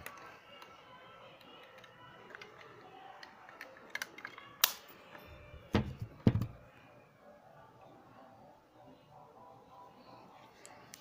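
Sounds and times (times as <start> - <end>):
thumps: 5.7 - 6.6.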